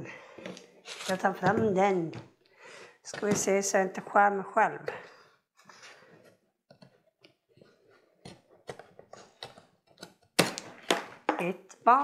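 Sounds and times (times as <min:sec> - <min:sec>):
knife scraping plastic strap: 0:00.6 - 0:01.4.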